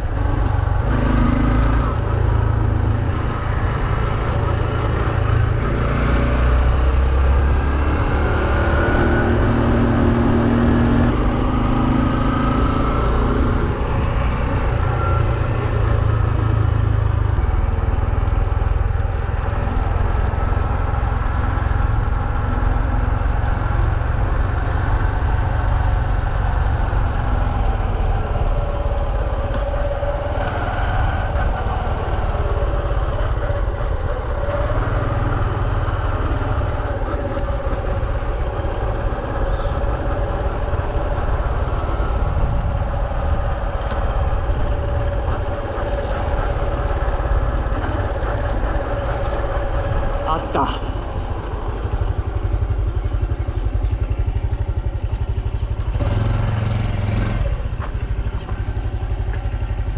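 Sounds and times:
motorcycle engine running: 0:00.0 - 0:59.9
wind rumble on microphone: 0:00.0 - 0:59.9.

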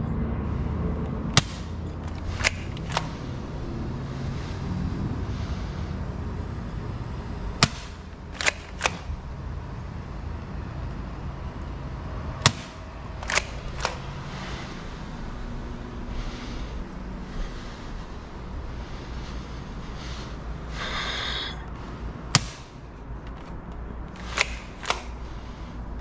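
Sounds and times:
salt gun firing crack: 0:07.6 - 0:09.2, 0:24.2 - 0:25.2.

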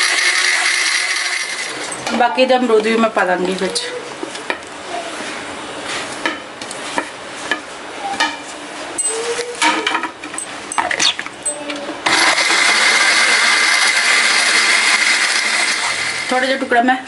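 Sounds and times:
mixer grinder running: 0:00.0 - 0:02.1, 0:12.0 - 0:17.0.

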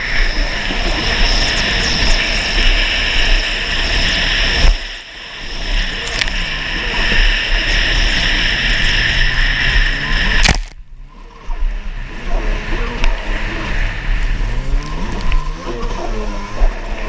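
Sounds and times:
jet ski engine revving: 0:00.0 - 0:17.0
rush of wind and spray: 0:00.0 - 0:17.0
sharp slap: 0:10.4 - 0:10.8.

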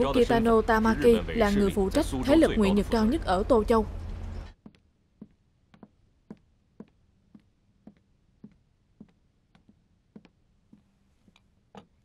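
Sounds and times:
heeled footsteps on hard floor: 0:04.6 - 0:10.9.

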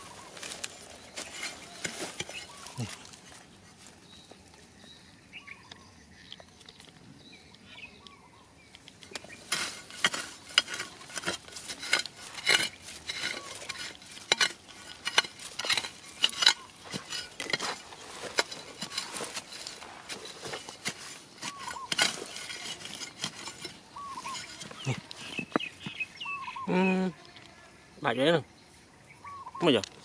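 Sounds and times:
hand tool scraping stony soil: 0:00.0 - 0:04.9, 0:08.8 - 0:27.6.

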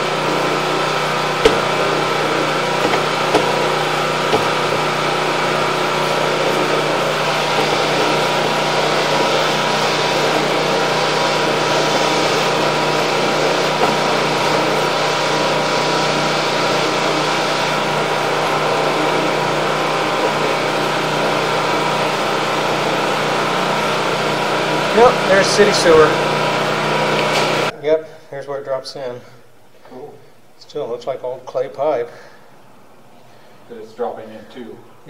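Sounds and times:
motor humming: 0:00.0 - 0:27.7.

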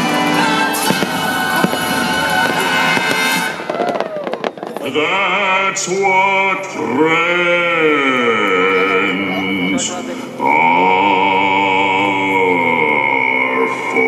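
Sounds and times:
soundtrack music over loudspeakers: 0:00.0 - 0:03.8
firework bangs: 0:00.0 - 0:06.6.

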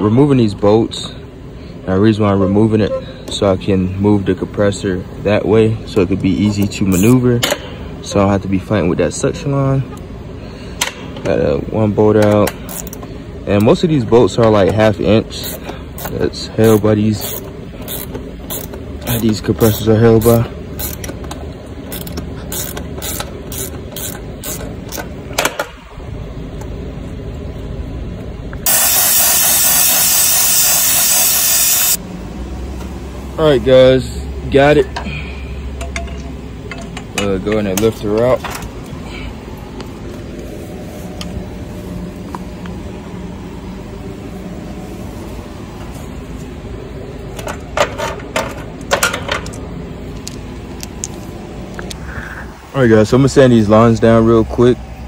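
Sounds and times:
steady low hum: 0:00.0 - 0:55.0
bolts and washers clinking: 0:12.1 - 0:13.8, 0:14.5 - 0:25.8, 0:35.8 - 0:39.0, 0:47.2 - 0:52.0
ratchet wrench clicking: 0:12.4 - 0:13.0, 0:15.4 - 0:25.1
brazing torch hissing: 0:28.6 - 0:32.0.

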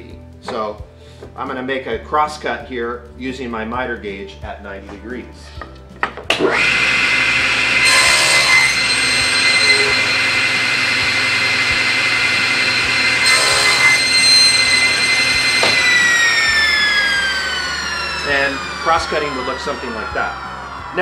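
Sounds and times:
saw blade cutting board: 0:06.3 - 0:21.0
table saw whine: 0:06.3 - 0:21.0.

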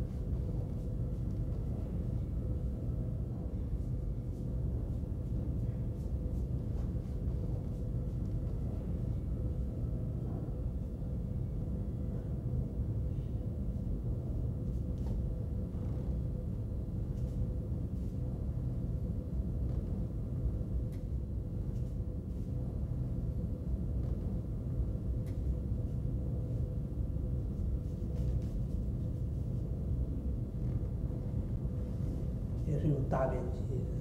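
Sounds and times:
low rumble and hum: 0:00.0 - 0:34.0.

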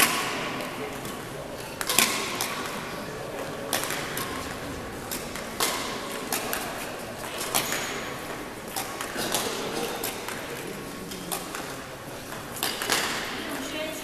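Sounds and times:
badminton racket hitting shuttlecock: 0:01.6 - 0:13.4.

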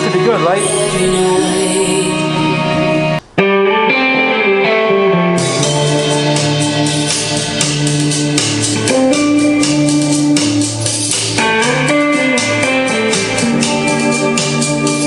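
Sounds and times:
moving bass line: 0:00.0 - 0:03.2
guitar-led music: 0:00.0 - 0:15.0.

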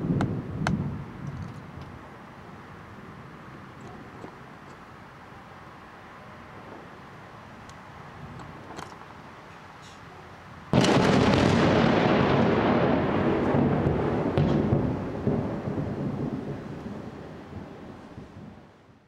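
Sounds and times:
thunder rumble: 0:00.0 - 0:01.3, 0:10.7 - 0:19.0
thunder crack: 0:10.7 - 0:18.6.

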